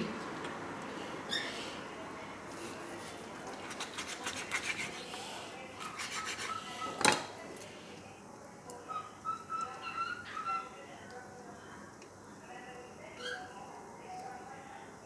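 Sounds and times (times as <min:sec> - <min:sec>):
knife scraping on stone board: 0:03.6 - 0:05.1, 0:05.8 - 0:07.0.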